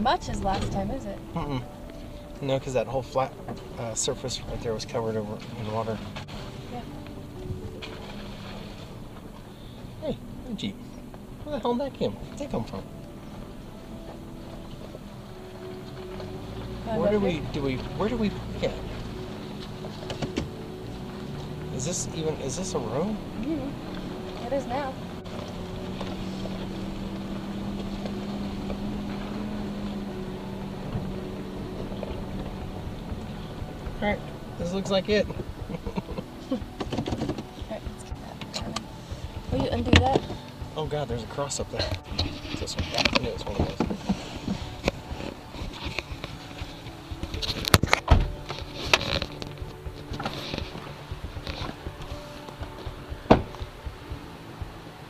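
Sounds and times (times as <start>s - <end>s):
truck engine running: 0.0s - 55.0s
knocks and rattles: 36.6s - 37.6s
heavy thump: 45.6s - 54.0s
thump: 47.7s - 48.4s, 53.3s - 53.6s.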